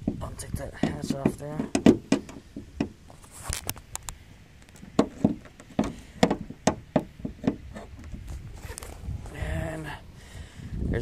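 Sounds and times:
car hood knocks and clicks: 0:00.0 - 0:03.0, 0:04.8 - 0:08.2.

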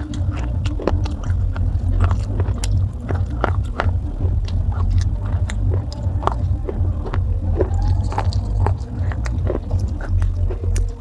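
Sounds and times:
crunching clay pieces: 0:00.0 - 0:11.0
low rumble: 0:00.0 - 0:11.0.

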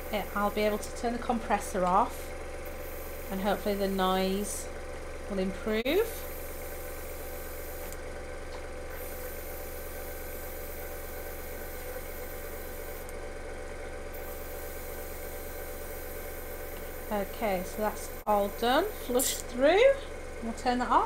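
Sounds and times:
compressor motor hum: 0:00.0 - 0:21.0
airbrush air hiss: 0:02.1 - 0:04.0, 0:08.9 - 0:13.1, 0:14.2 - 0:19.2.

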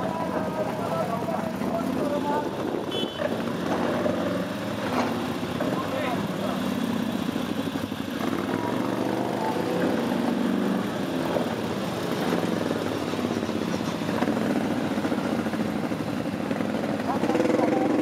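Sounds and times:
quad bike engines revving: 0:00.0 - 0:18.0.

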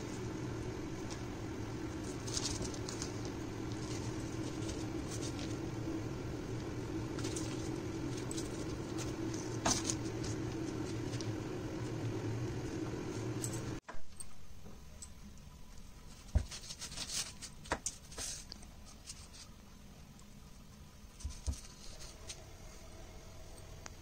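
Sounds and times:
steady low hum: 0:00.0 - 0:24.0
hands rubbing pastry on paper: 0:01.0 - 0:11.9, 0:16.0 - 0:19.6.

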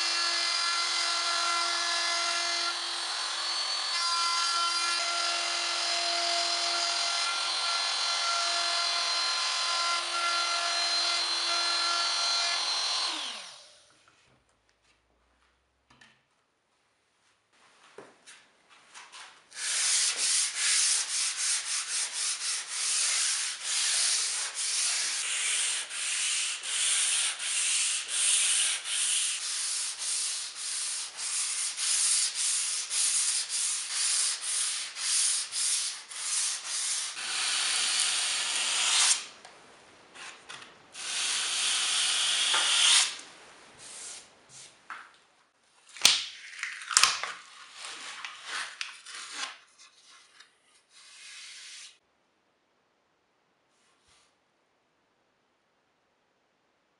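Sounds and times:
hand sanding wood: 0:19.6 - 0:37.2.

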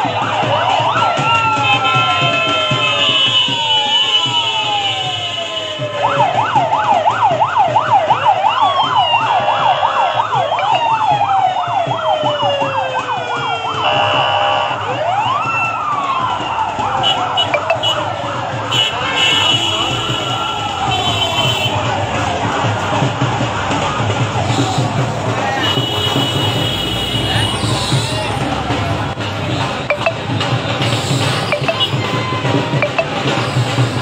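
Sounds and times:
siren fast yelp: 0:00.0 - 0:18.6, 0:31.1 - 0:33.4
sirens wailing: 0:00.0 - 0:34.0.

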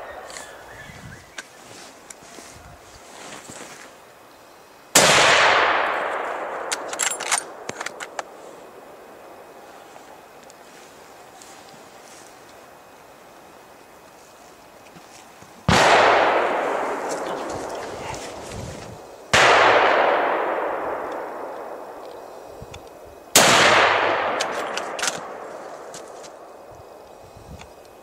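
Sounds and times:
gunshots echoing: 0:04.9 - 0:08.4, 0:15.7 - 0:18.5, 0:19.3 - 0:22.0, 0:23.3 - 0:26.0.

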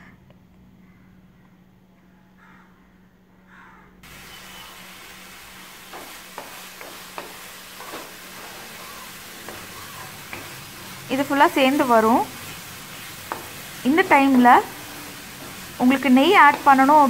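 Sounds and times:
soft sizzle: 0:04.0 - 0:17.0.

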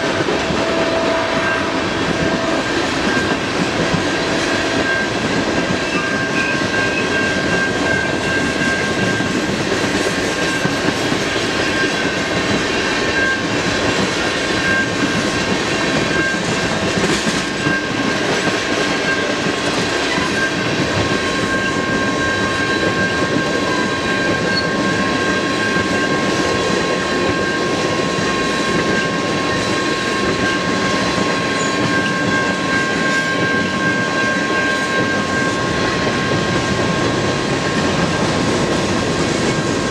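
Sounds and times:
train wheels clacking on rail joints: 0:00.0 - 0:39.9.

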